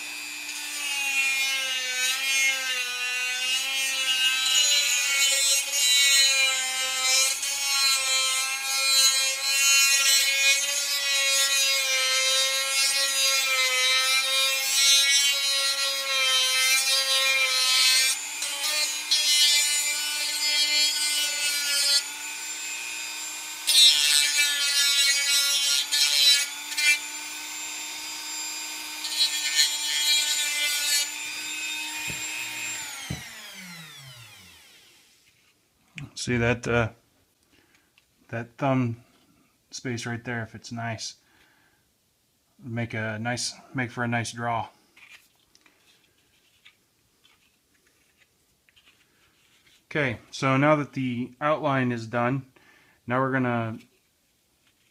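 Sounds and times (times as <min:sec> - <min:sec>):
rotary tool whining: 0:15.8 - 0:35.3.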